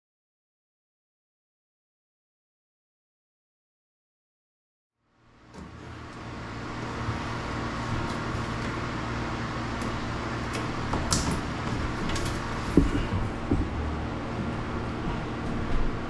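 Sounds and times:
machine drone with low hum: 5.0 - 16.0.

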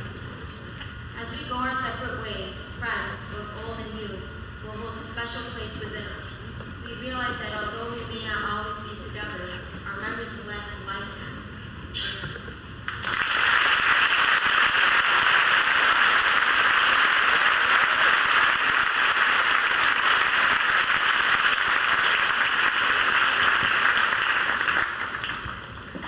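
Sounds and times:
crowd applauding: 12.9 - 26.0.

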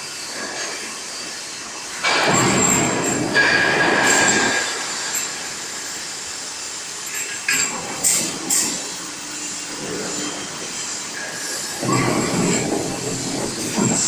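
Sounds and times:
machine running noise: 0.0 - 14.0
metal rolling pass: 7.1 - 14.0.

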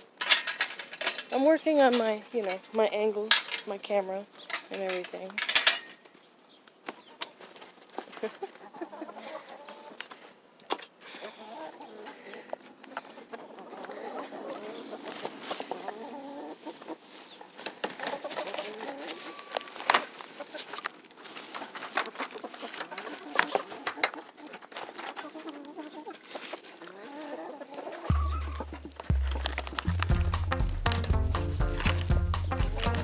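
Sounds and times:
hens clucking: 6.7 - 33.0.

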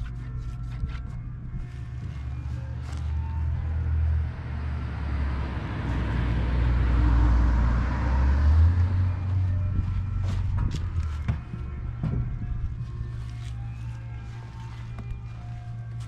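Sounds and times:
steady low rumble: 0.0 - 16.0
car passing: 2.1 - 12.0.

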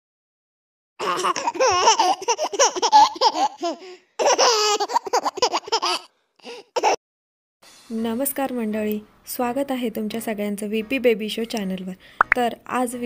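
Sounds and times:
baby giggling and laughing: 1.0 - 7.0.

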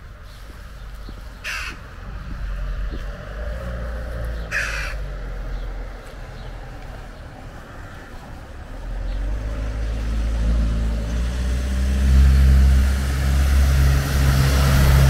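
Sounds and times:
crow cawing: 1.4 - 1.8, 4.5 - 5.1.

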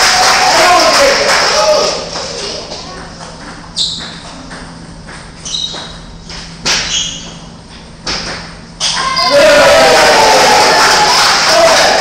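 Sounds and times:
children cheering: 0.0 - 2.0, 8.8 - 12.0.

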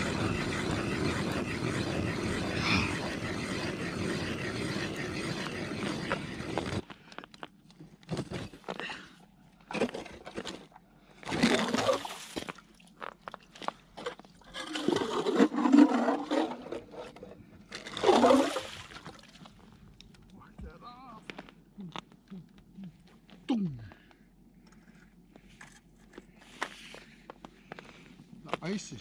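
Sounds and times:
ice auger grinding through ice: 0.0 - 6.9, 11.2 - 12.1, 14.0 - 19.1
water sloshing and gurgling: 9.8 - 19.8.

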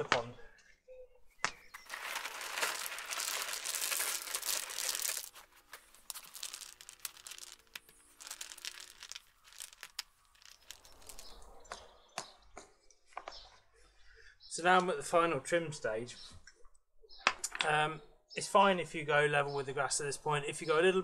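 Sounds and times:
stones clicking as placed: 1.4 - 12.3
pebbles clattering out of tub: 1.8 - 11.5.

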